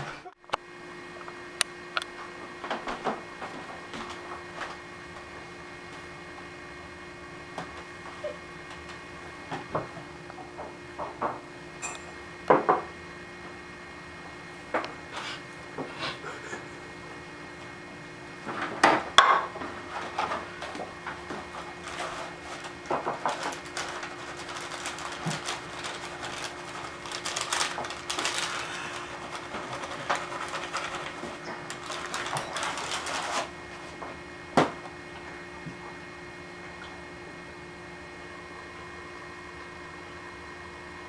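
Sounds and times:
plastic bag crinkling: 20.0s - 33.6s.

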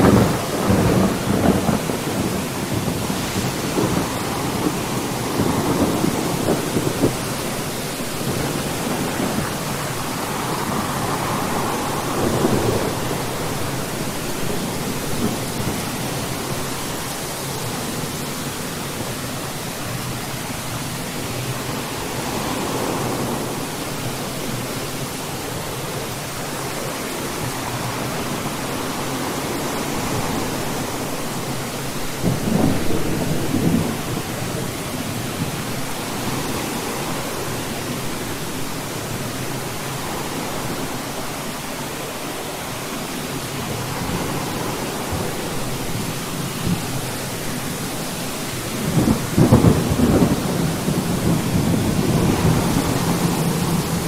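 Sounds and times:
thunder rolling and cracking: 0.0s - 18.2s, 48.7s - 54.0s
steady rain: 0.0s - 54.0s.

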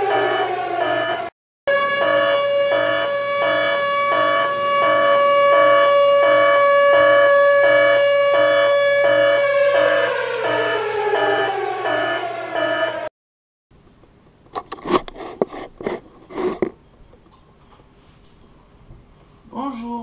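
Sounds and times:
pulsing tone: 0.0s - 13.1s
siren wail: 0.0s - 13.1s.

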